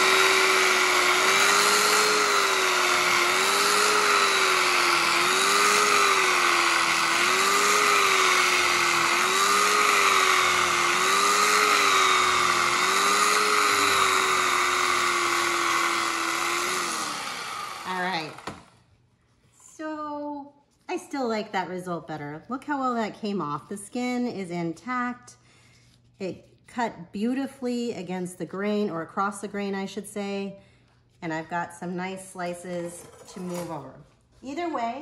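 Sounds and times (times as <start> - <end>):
electric carving knife whining: 0.0 - 18.7.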